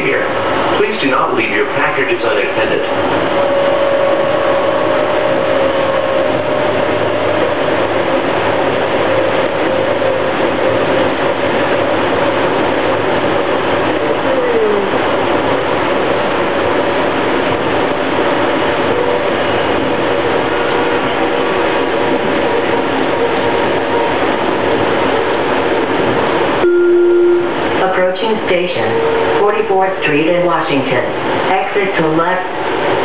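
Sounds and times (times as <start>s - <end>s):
wheels rumbling on rails: 0.0s - 33.0s
held whining tone: 3.1s - 7.9s, 26.6s - 27.7s
tone sliding downward: 26.6s - 27.6s.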